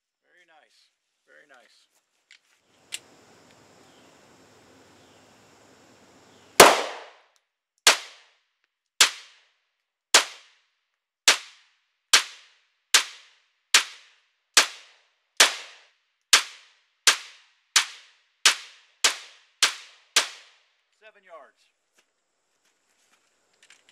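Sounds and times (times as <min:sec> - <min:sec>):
pistol shots: 0:06.6 - 0:07.2, 0:07.9 - 0:08.2.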